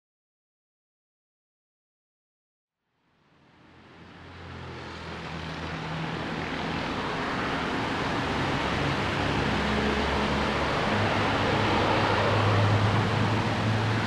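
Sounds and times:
steady rumbling noise: 0:03.5 - 0:14.0.

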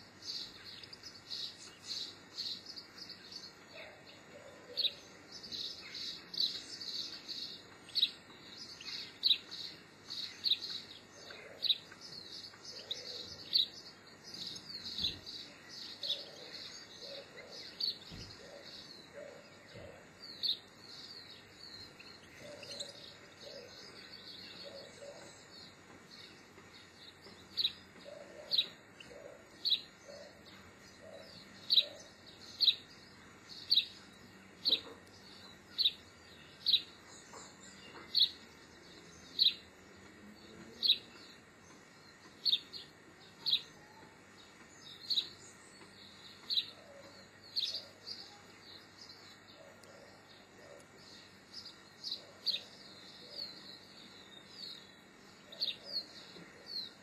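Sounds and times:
small birds twittering and chirping: 0:00.0 - 0:57.0.

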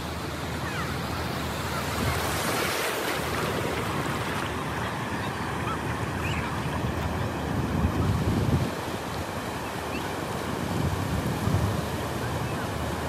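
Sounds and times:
ocean surf washing: 0:00.0 - 0:13.0
wind buffeting microphone: 0:01.5 - 0:13.0.

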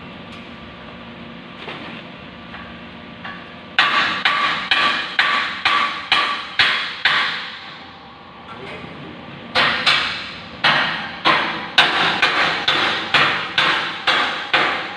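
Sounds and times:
hammer striking steel: 0:03.8 - 0:07.7, 0:09.5 - 0:14.9.

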